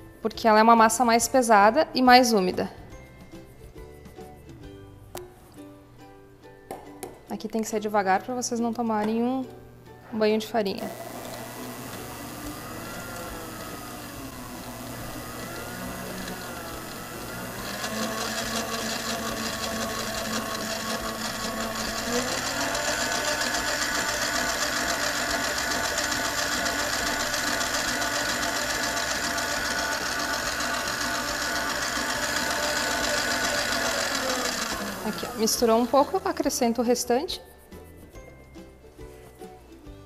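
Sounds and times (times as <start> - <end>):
stand mixer motor whine: 10.9 - 36.3.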